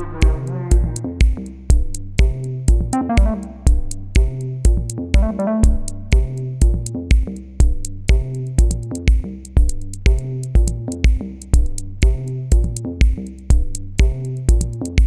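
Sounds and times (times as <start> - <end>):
synth bass line: 0.0 - 7.0
drum machine beat: 0.0 - 15.0.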